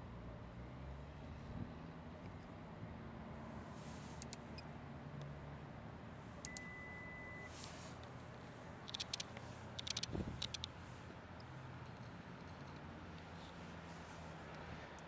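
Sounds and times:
electronic beep: 6.5 - 7.5.

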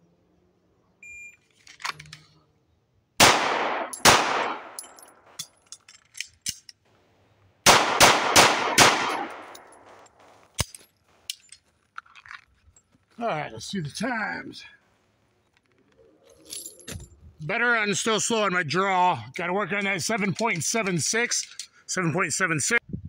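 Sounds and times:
magazine change clicks and clatter: 1.5 - 2.3, 3.6 - 6.8, 7.7 - 12.8
pistol shots with echo: 3.2 - 5.1, 7.6 - 10.0.

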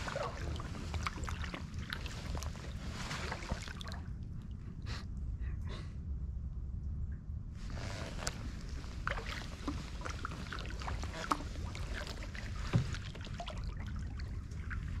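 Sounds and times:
paddle dipping in water: 0.0 - 4.4, 7.6 - 15.0
steady low rumble: 0.0 - 15.0
water dripping off paddle: 9.0 - 15.0.

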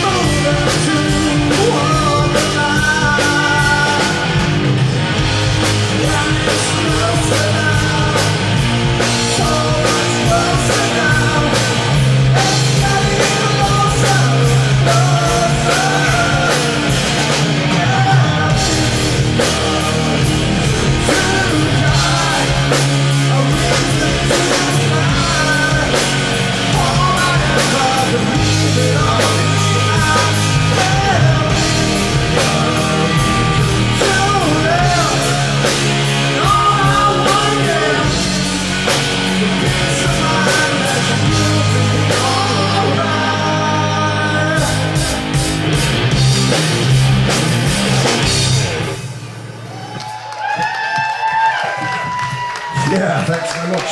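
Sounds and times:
man singing: 0.0 - 4.7, 5.6 - 45.4
bass guitar: 0.0 - 53.9
drums: 0.0 - 53.9
electric guitar: 0.0 - 53.9.

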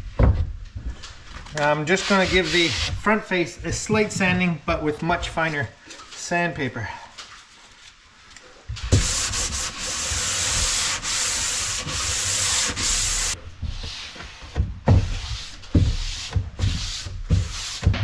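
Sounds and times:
sandpaper sanding wood: 1.8 - 3.1, 8.9 - 18.0.

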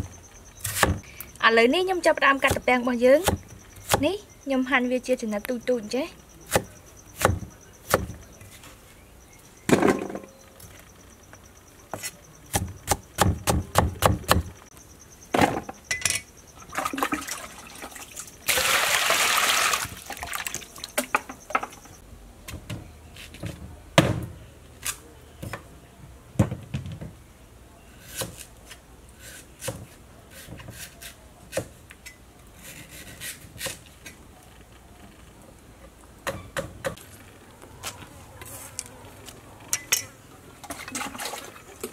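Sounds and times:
clinks and knocks: 15.3 - 16.3, 20.9 - 22.0.

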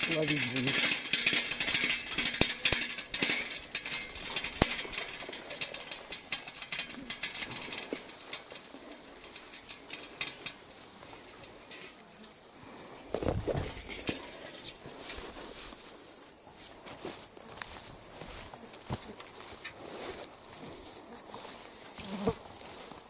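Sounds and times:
faint outdoor background: 0.0 - 23.0
grass swishing against legs: 13.1 - 23.0.

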